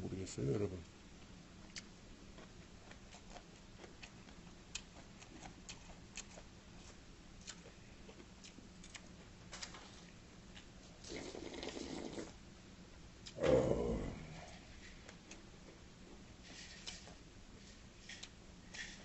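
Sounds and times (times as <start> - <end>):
low steady hum: 0.0 - 19.0
chewing: 1.6 - 12.4, 13.2 - 19.0.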